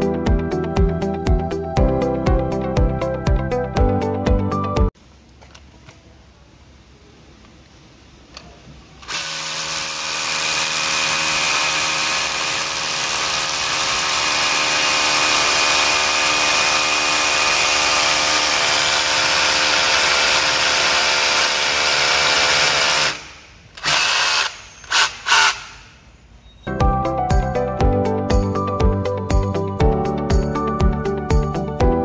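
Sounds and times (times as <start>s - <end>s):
rotary hammer drilling into concrete: 9.1s - 25.9s.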